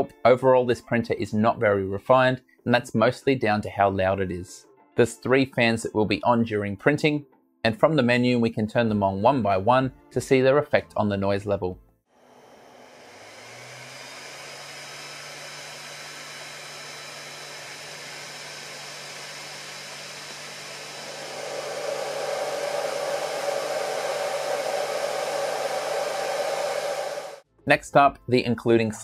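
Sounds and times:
cooling fans whirring: 12.3s - 27.4s.

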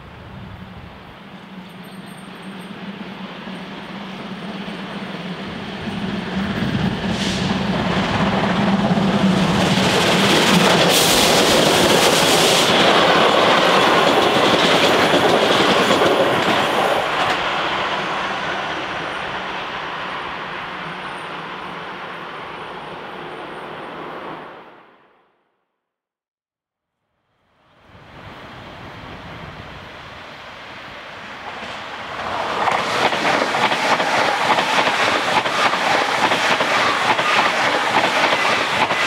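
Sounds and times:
steam train passing: 0.0s - 25.0s, 27.8s - 39.0s
sharp loud hiss: 7.0s - 8.3s.

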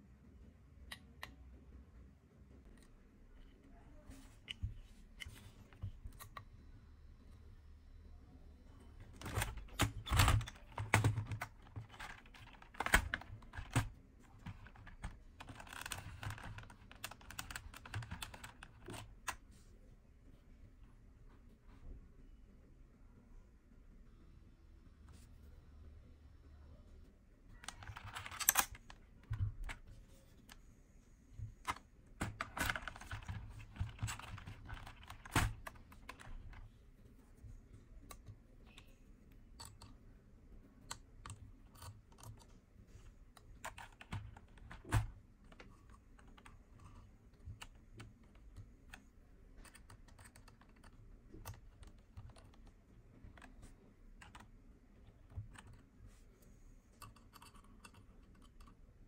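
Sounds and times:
light clicks and taps from handling: 31.3s - 59.0s.

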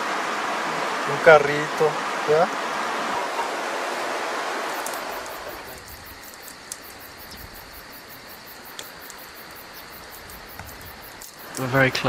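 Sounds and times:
steady background hiss: 0.0s - 12.0s
insects chirping: 2.7s - 12.0s
faint clicks: 4.7s - 12.0s.

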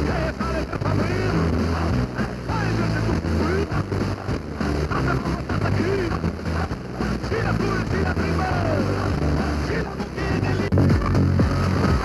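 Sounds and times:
music from small radio speaker: 0.0s - 12.0s
person speaking over music: 4.9s - 9.1s.

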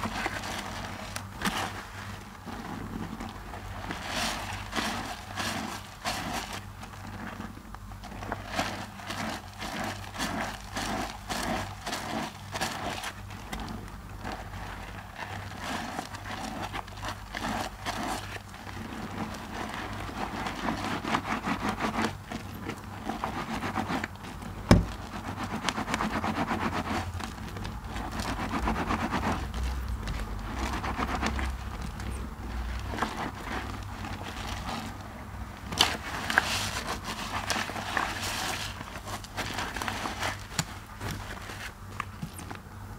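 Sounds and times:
sponges squelching in soap suds: 0.0s - 42.6s
sharp knock: 24.7s - 24.9s.

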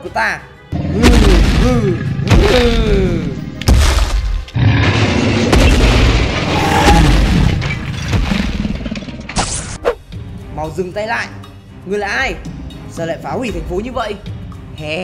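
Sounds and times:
background music: 0.0s - 15.0s
heavy booms and crashes: 0.8s - 9.1s.

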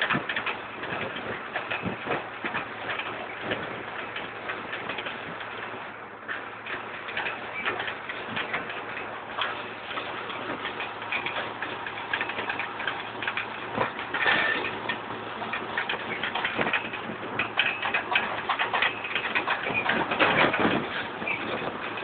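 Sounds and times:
faint tractor engine hum: 0.0s - 22.0s
planter metal parts rattling: 0.0s - 22.0s.

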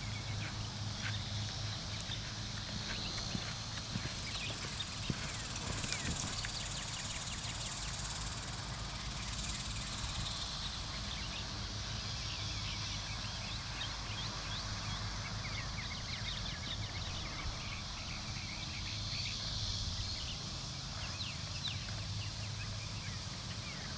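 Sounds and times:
short insect chirps: 0.0s - 11.4s
insects trilling: 0.0s - 23.9s.

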